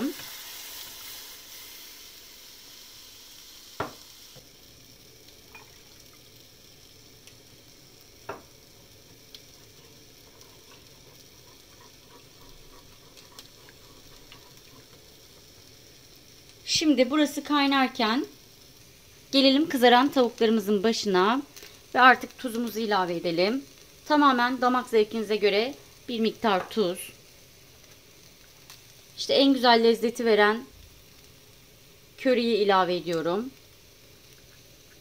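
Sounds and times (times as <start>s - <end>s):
milk sizzling in a saucepan: 0.0s - 35.0s
wooden spoon knocking on pan: 3.8s - 4.0s.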